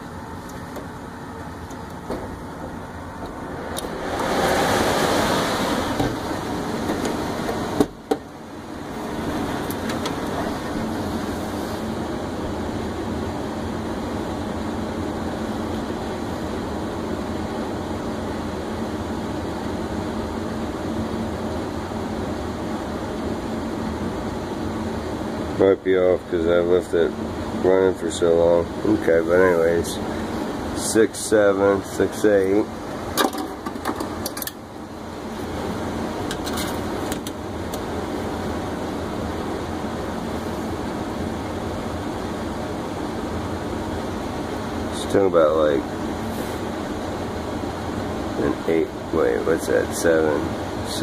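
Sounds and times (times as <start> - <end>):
furnace blower rushing air: 0.0 - 51.0.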